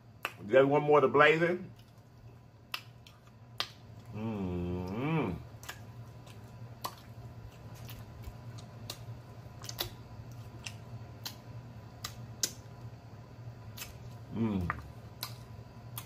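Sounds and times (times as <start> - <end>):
low steady hum: 0.0 - 16.0
man chewing: 1.7 - 12.8, 13.6 - 16.0
wet mouth clicks and smacks: 2.6 - 4.1, 5.5 - 11.4, 12.0 - 12.7, 13.7 - 14.1.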